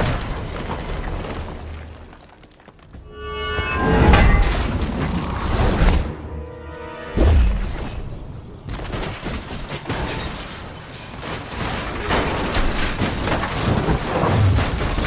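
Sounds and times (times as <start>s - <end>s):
crashing rock and debris: 0.0s - 3.0s, 8.7s - 15.0s.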